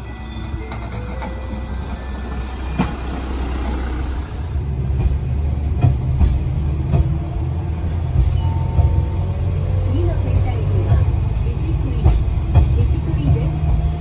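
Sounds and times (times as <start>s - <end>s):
diesel engine humming: 0.0s - 14.0s.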